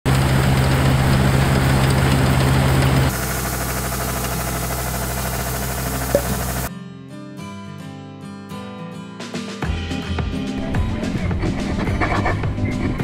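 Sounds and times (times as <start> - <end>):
combine harvester engine drone: 0.1 - 6.7
fast low rattle: 0.1 - 6.7.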